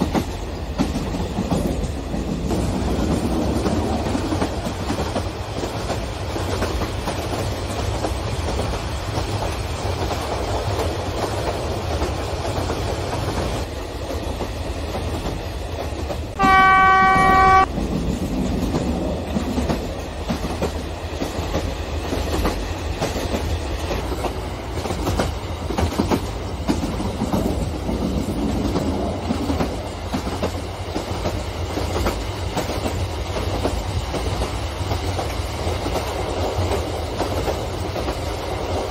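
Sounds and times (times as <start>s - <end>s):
train horn: 16.4s - 17.8s.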